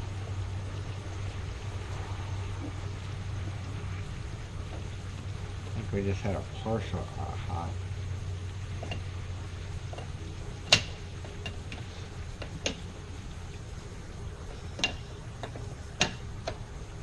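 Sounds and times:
steady low hum: 0.0 - 17.0
sharp metal clicks and taps: 10.7 - 12.9, 14.8 - 16.6.

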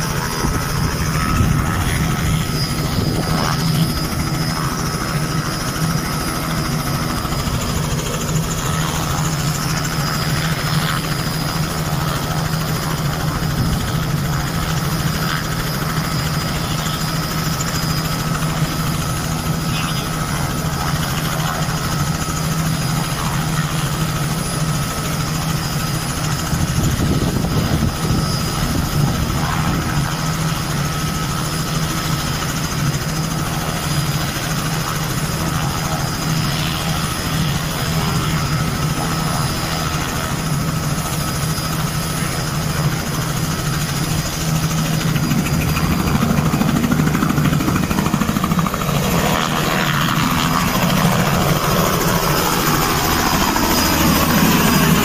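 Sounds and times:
helicopter engine and rotor: 0.0 - 55.0.

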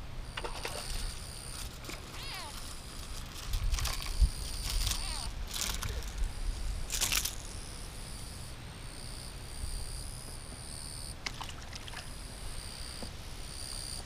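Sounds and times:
wind rumble on microphone: 2.6 - 7.8
light water splashing: 11.2 - 12.2.

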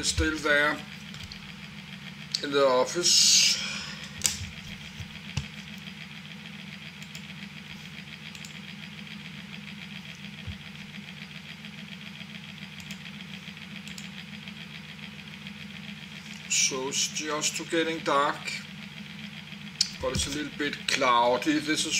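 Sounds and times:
low room hum: 0.0 - 21.9
computer mouse clicks: 8.3 - 8.6, 13.8 - 14.1.

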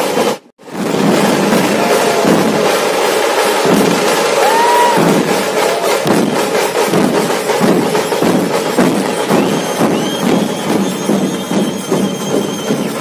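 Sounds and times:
dhol drums beating: 0.0 - 13.0
rapid tasha drum crackle: 0.1 - 13.0.

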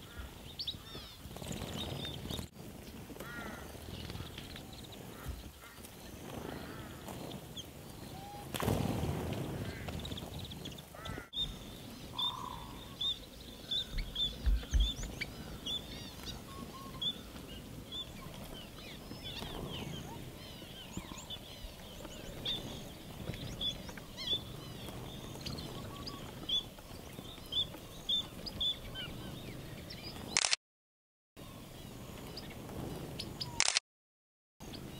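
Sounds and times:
finches chirping: 9.8 - 30.3
low thumps: 13.8 - 15.2.

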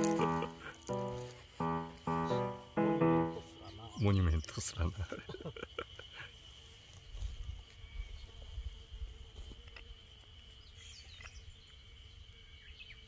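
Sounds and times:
bird chirping call: 0.0 - 4.6.

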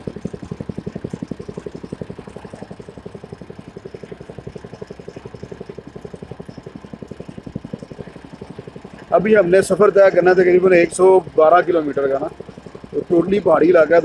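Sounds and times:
engine chugging rapidly: 0.0 - 14.0.

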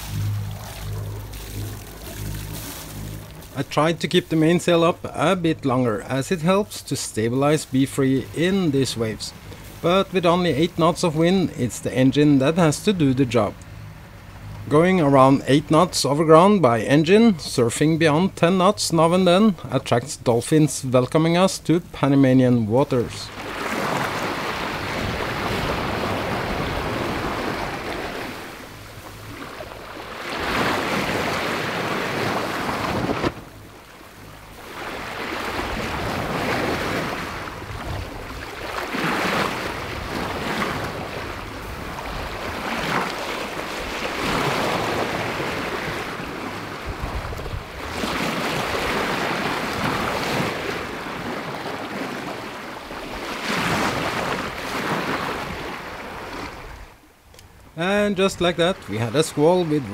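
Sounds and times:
water splashing along boat hull: 0.0 - 57.7
wind buffeting microphone: 35.3 - 43.0, 43.9 - 50.2.

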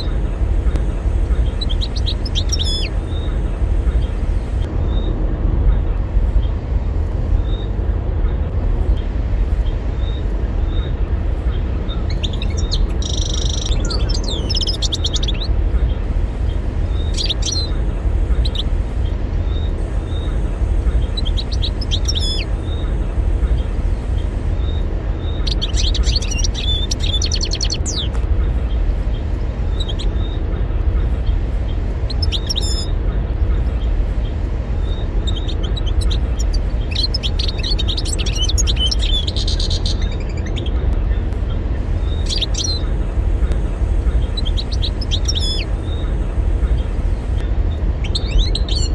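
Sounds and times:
bird chirps and trills: 0.0 - 6.6, 7.4 - 8.5, 9.6 - 48.9
steady low rumble: 0.0 - 48.9
goldfinch twittering: 1.4 - 3.4, 11.9 - 15.5, 17.0 - 17.7, 21.0 - 22.9, 24.7 - 28.2, 32.0 - 32.9, 34.8 - 40.8, 44.2 - 46.1, 48.0 - 48.9.

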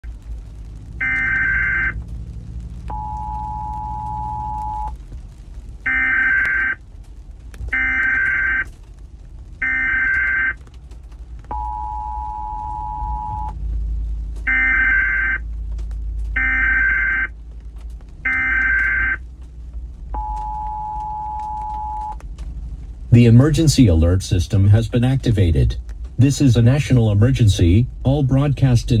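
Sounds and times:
steady low rumble: 0.0 - 29.0
buzzy warbling data bursts: 1.0 - 2.0, 18.3 - 19.2
two-tone attention signal: 2.9 - 4.9, 11.5 - 13.5, 14.5 - 15.4, 16.4 - 17.3, 20.2 - 22.2.

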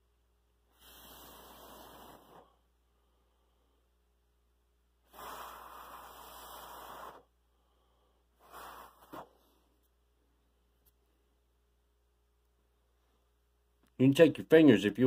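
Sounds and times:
person exhaling: 0.7 - 3.8, 5.1 - 9.7.

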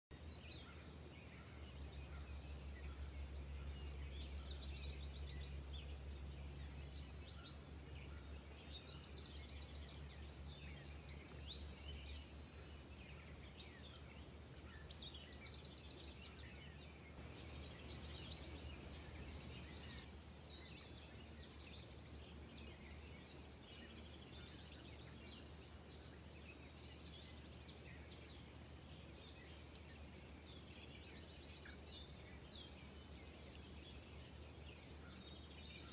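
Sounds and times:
small birds chirping: 0.1 - 35.9
low steady rumble: 0.8 - 16.3, 17.2 - 23.8.

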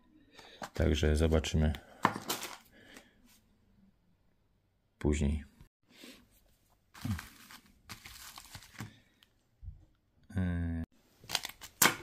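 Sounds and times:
plastic packaging rustling: 6.9 - 9.2.

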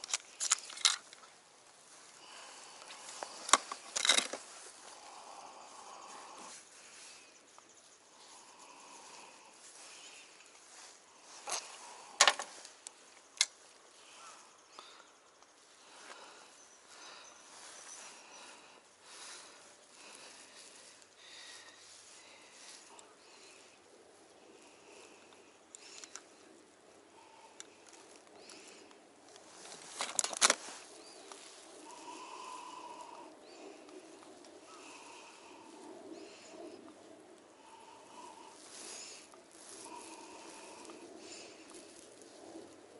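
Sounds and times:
faint steady hiss: 0.0 - 42.9
plastic packets rustling: 29.4 - 31.8.

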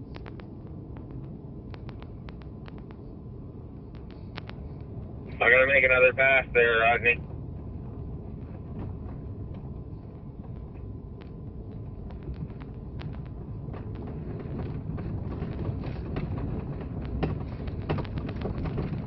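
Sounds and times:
truck engine drone in cab: 0.0 - 19.0
sharp clicks and knocks: 0.1 - 3.0, 10.4 - 19.0.

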